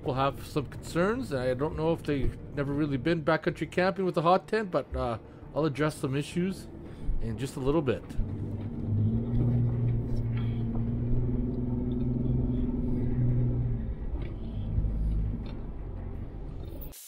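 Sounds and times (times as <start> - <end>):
tyres rumbling on road: 7.2 - 16.6
car engine hum: 7.7 - 16.9.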